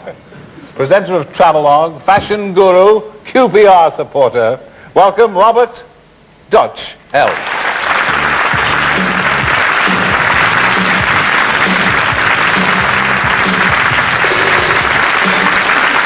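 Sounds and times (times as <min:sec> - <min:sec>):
studio audience applauding: 0:07.2 - 0:16.0
walk-on music with bass line: 0:08.1 - 0:16.0.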